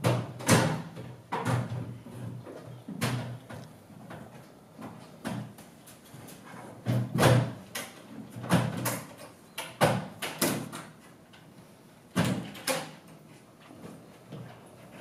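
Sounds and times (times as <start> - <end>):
doors knocking and rattling: 0.0 - 5.6, 6.8 - 10.9, 12.2 - 13.1.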